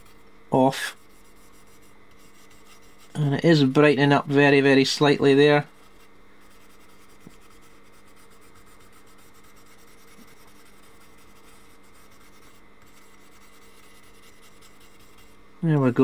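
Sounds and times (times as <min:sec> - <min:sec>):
faint steady hum: 0:00.0 - 0:16.0
pen scratching circuit board: 0:00.9 - 0:03.2, 0:05.8 - 0:15.4.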